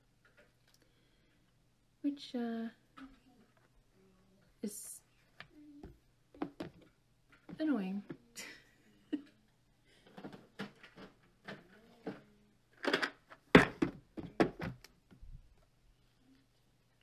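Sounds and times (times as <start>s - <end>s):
plastic boxes clicking and knocking: 10.0s - 15.0s.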